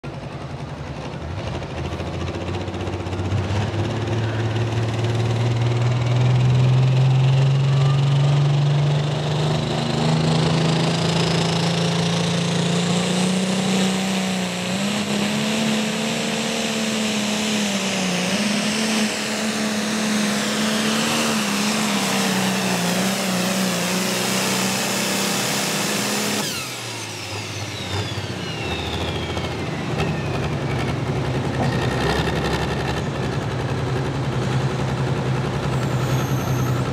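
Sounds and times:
tractor engine under load: 0:00.0 - 0:36.9
high turbo whistle: 0:25.4 - 0:31.0.

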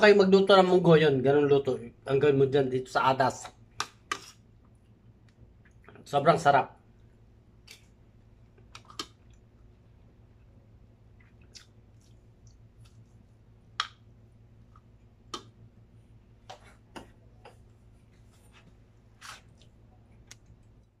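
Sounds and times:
faint low hum: 0:00.0 - 0:21.0
chewing mouth noises: 0:11.1 - 0:13.2.

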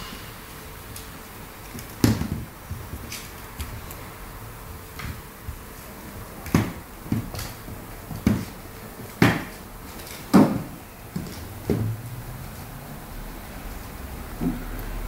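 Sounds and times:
puppy thumping on wooden floor: 0:06.4 - 0:09.6.

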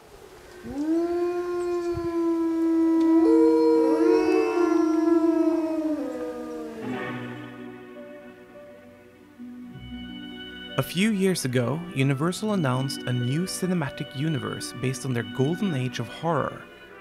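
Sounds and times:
wolf howling: 0:00.5 - 0:07.8
second higher wolf howl: 0:00.6 - 0:07.7.

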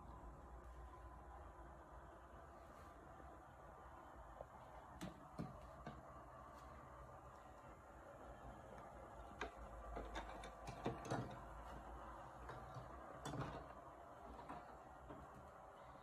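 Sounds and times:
low steady hum: 0:00.0 - 0:16.0
plastic clicks and knocks: 0:09.2 - 0:11.7.

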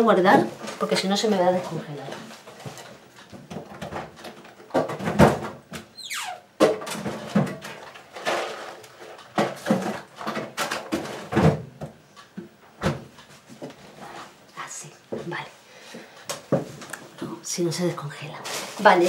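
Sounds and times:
freezer door knocks and thuds: 0:04.7 - 0:05.9, 0:09.4 - 0:12.0, 0:12.8 - 0:13.1
short falling squeak: 0:05.9 - 0:06.5.

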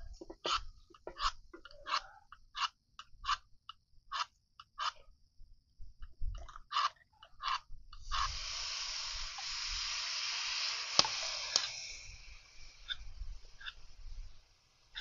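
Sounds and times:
liquid sizzling in hot pan: 0:08.0 - 0:14.3.

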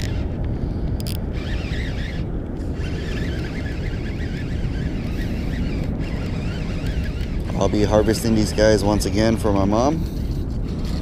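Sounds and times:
wind buffeting microphone: 0:00.0 - 0:11.0
faint wavering high sounds: 0:01.3 - 0:09.4.

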